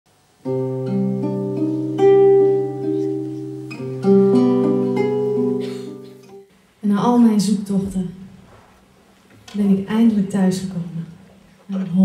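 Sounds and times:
classical guitar plucked notes: 0.4 - 6.5.

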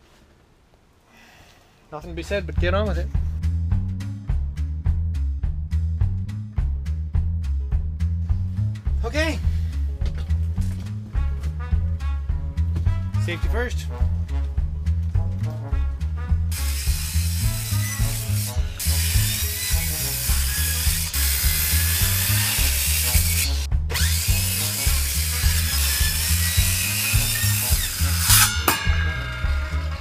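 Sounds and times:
circular saw cutting wood: 16.5 - 30.0.

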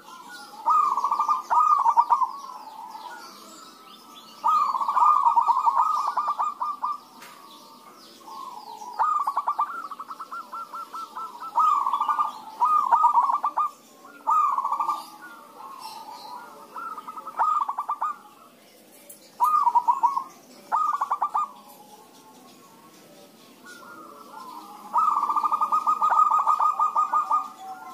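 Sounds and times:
doves cooing: 0.0 - 18.6, 19.2 - 27.9.

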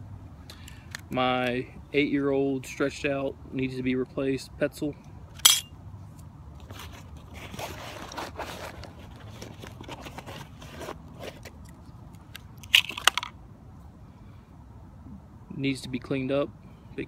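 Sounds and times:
knife drawn from plastic sheath: 6.6 - 11.8.

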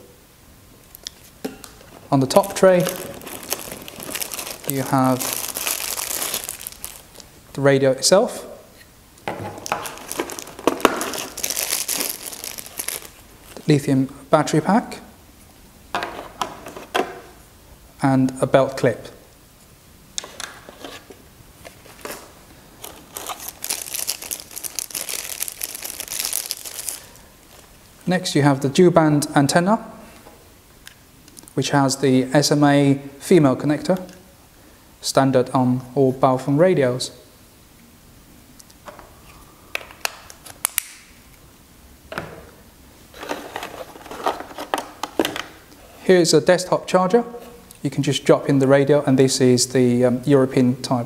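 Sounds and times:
rummaging among cables: 1.7 - 7.3, 9.3 - 13.6, 20.2 - 27.8, 43.1 - 45.6
plastic bag crinkling: 1.8 - 7.4, 9.6 - 13.7, 21.6 - 28.1, 43.1 - 45.3
packaging clicks: 2.4 - 7.3, 9.6 - 13.2, 22.0 - 27.6.

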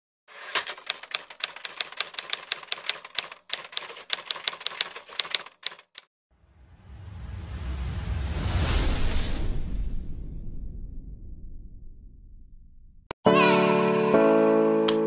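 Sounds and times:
typewriter key clacks: 0.4 - 6.1
rising hissing swell: 6.4 - 11.8.

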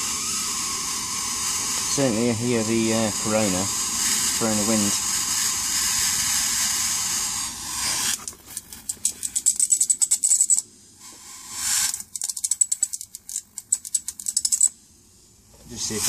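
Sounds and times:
high-voltage corona hiss: 0.0 - 8.2, 14.4 - 16.0.

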